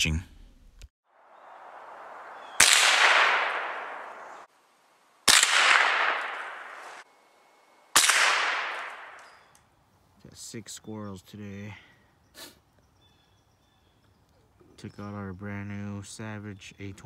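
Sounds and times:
rifle shots: 2.3 - 4.5, 5.2 - 7.0, 7.9 - 9.4.

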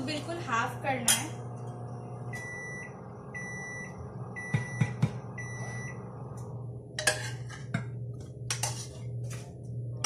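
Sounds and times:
scraping and clatter of pots: 7.0 - 9.6.

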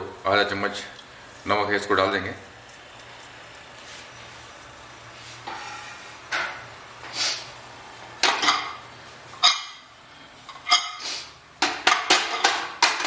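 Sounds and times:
metal pot and lid clanking: 9.4 - 9.9.

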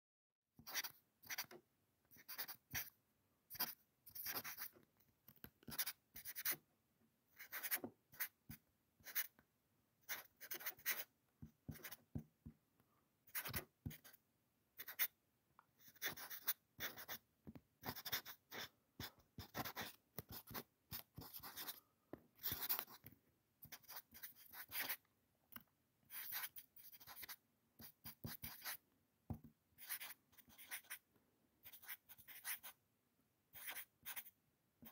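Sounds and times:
pencil scratching on paper: 0.6 - 4.8, 5.6 - 6.6, 7.4 - 9.3, 10.0 - 12.2, 13.3 - 14.2, 14.8 - 15.2, 15.8 - 17.2, 17.8 - 23.0, 23.6 - 25.0, 26.1 - 28.8, 29.8 - 31.0, 31.6 - 32.8, 33.5 - 34.9.

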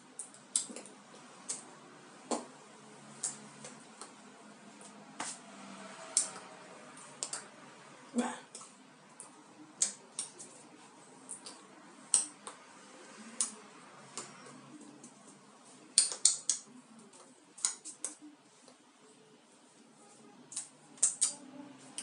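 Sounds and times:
hands clicking and slapping: 7.2 - 7.5, 8.5 - 10.6, 11.3 - 12.6, 15.9 - 18.8, 20.5 - 21.4.

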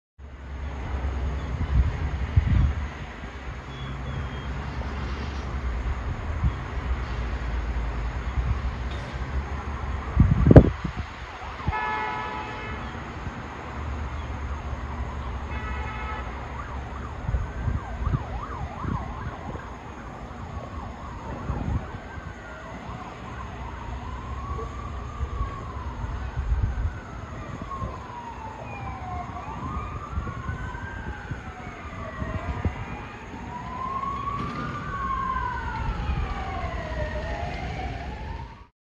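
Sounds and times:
sirens wailing: 0.4 - 38.7
short horn blasts: 11.6 - 12.9.

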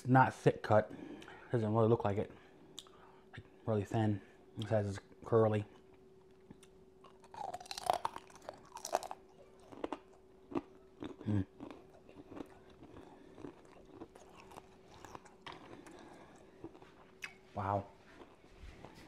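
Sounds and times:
chewing close to mouth: 6.5 - 17.4
crunchy bites into bacon: 6.5 - 17.4.

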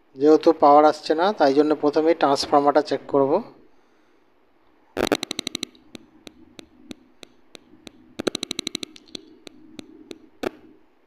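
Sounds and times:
probe tips clicking on metal: 5.0 - 10.7.

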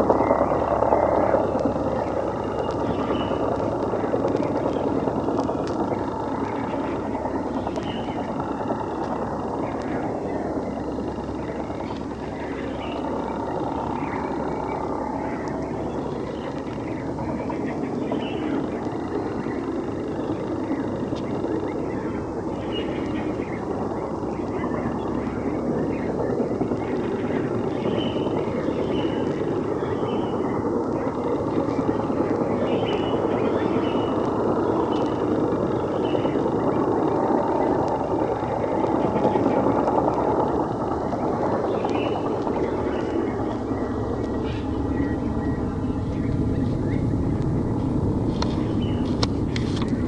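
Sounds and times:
helicopter droning overhead: 0.0 - 50.0
bird chirps: 0.2 - 50.0.

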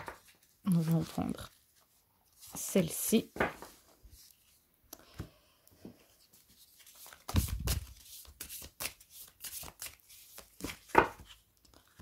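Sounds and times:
cards shuffling: 6.3 - 12.0.

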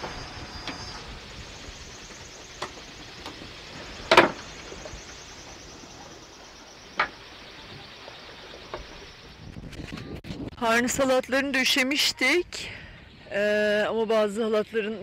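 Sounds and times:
water and wind rushing past hull: 0.0 - 11.0.

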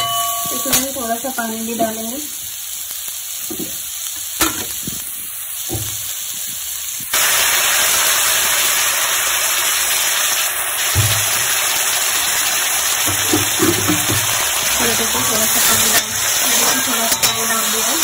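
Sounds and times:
metal ladle knocking pan: 0.0 - 1.0, 13.0 - 18.0
vegetables sizzling in pan: 0.0 - 18.0.

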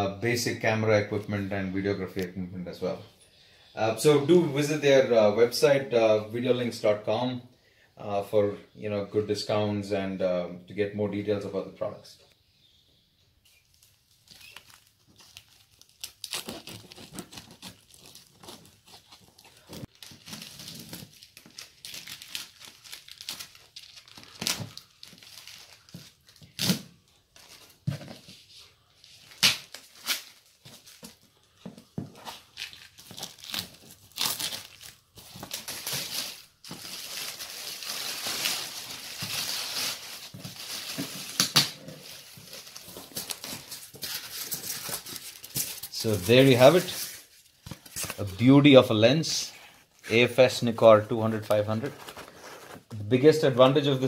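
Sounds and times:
plastic wrap crinkling: 13.4 - 27.8, 32.2 - 48.8
packing tape ripping: 13.8 - 27.0, 29.3 - 30.6, 32.2 - 47.2.

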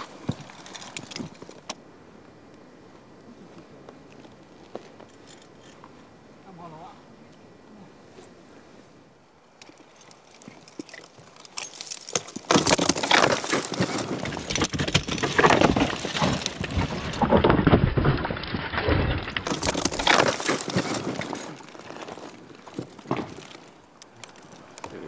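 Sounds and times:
rustling: 9.6 - 25.0
climbing gear jangling: 9.7 - 14.7.

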